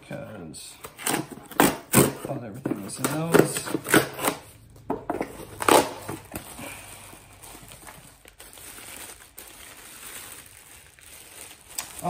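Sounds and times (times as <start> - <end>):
cardboard box rustling: 4.9 - 10.2
plastic bag crinkling: 5.5 - 12.0.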